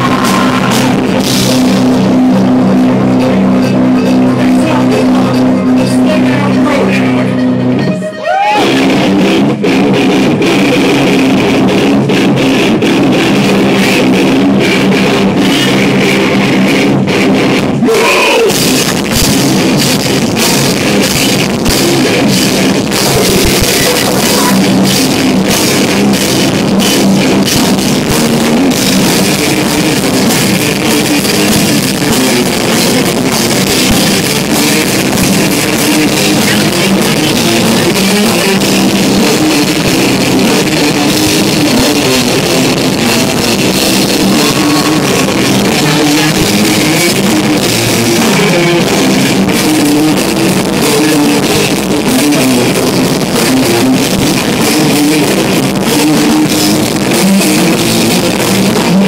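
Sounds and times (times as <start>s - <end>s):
drum kit pounding: 0.0s - 59.0s
electric guitars: 0.0s - 59.0s
falling pitch slide: 41.7s - 49.5s.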